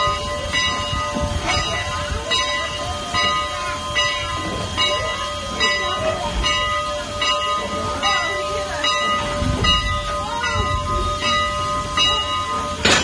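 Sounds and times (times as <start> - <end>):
faint voices of onlookers: 0.0 - 13.0
steam locomotive bell ringing: 0.0 - 13.0.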